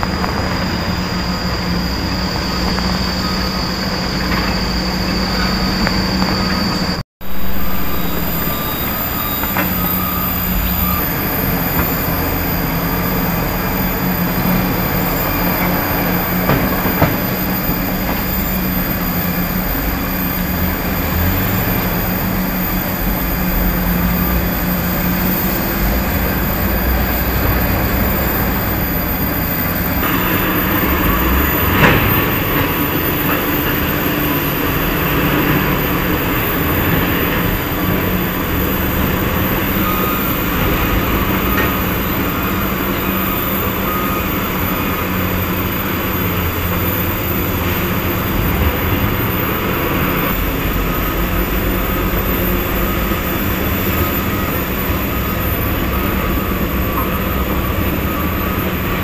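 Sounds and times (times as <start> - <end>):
diesel truck engines rumbling: 0.0 - 59.0.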